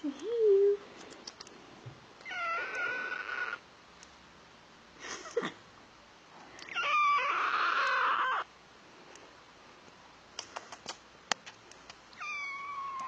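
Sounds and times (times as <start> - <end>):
kitten meowing: 2.3 - 3.6, 6.7 - 8.4, 12.2 - 13.0.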